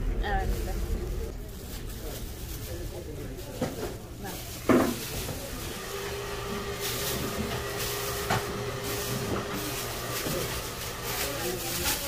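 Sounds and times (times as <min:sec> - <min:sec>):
steady low hum: 0:00.0 - 0:04.6
plastic sheeting crinkling: 0:00.2 - 0:12.0.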